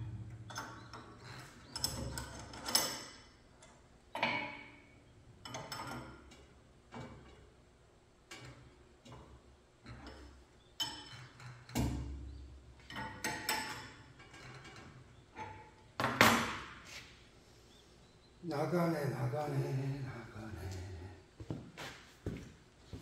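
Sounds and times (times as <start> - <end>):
tools and metal parts clinking: 0.5 - 4.8, 5.4 - 7.5, 9.8 - 11.8, 12.9 - 15.8.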